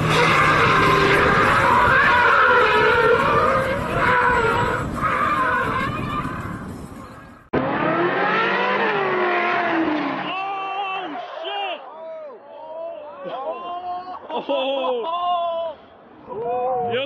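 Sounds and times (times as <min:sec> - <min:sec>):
car engine running: 0:00.0 - 0:10.3
car tyres squealing: 0:00.0 - 0:10.5.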